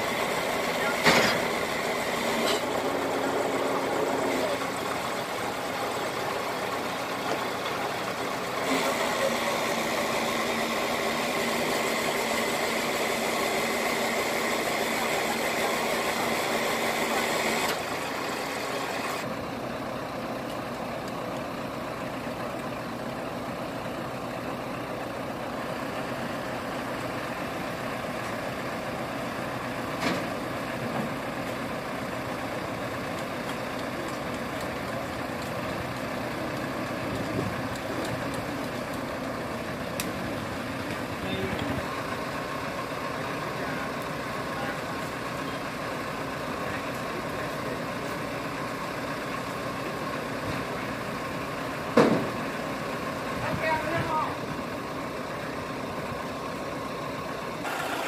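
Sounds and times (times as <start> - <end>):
truck engine running with whine: 0.0 - 58.0.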